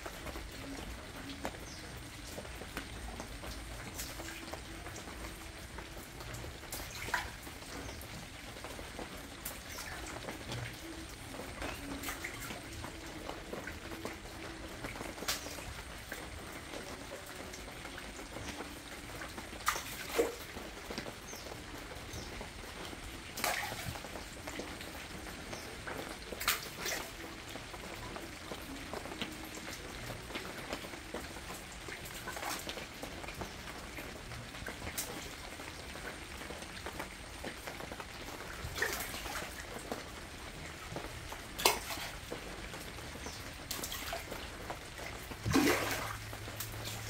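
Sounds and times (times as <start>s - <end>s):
water trickling: 0.0s - 47.0s
splashes at water surface: 1.6s - 27.8s, 38.5s - 47.0s.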